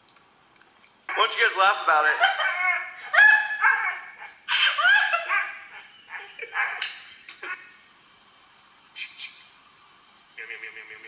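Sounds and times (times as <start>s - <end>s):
dog yelping: 2.2s - 7.0s.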